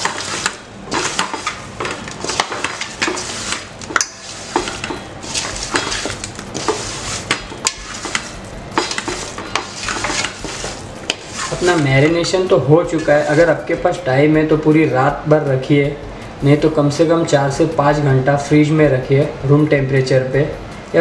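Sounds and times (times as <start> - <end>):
chicken pieces knocking in metal bowl: 0.0 - 11.8.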